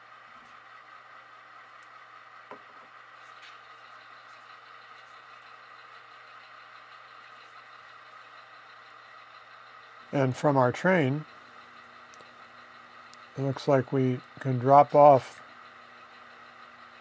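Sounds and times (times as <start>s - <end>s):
faint model locomotive idling: 0.0s - 17.0s.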